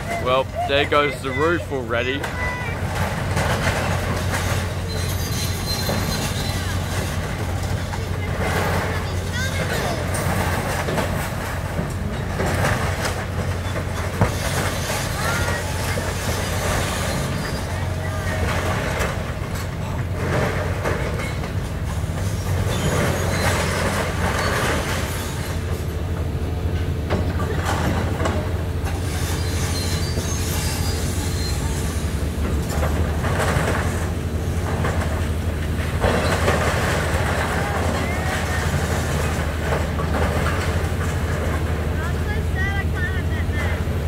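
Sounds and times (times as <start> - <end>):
crunching and scraping metal: 0.0 - 43.9
excavator diesel engine running: 0.0 - 44.0
thin metallic squeals: 4.8 - 7.0, 28.9 - 32.2.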